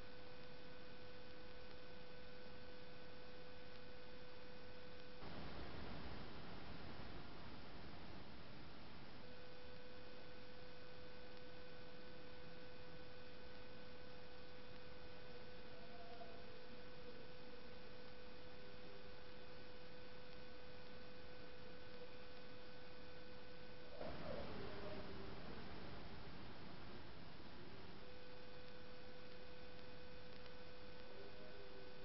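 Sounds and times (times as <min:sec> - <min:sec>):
steady tone: 0:05.2 - 0:11.5.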